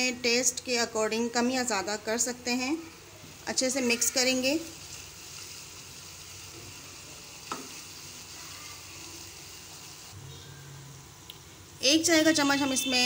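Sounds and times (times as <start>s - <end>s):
masala sizzling in oil: 0.0s - 10.2s.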